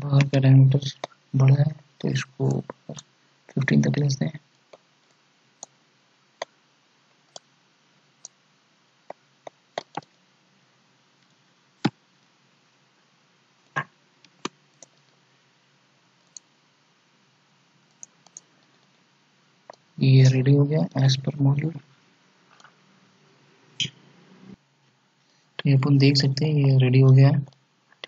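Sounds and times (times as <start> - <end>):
faint steady hiss: 0.0 - 28.0
computer mouse clicks: 9.1 - 10.2, 13.7 - 15.1, 16.2 - 16.5, 17.9 - 18.9.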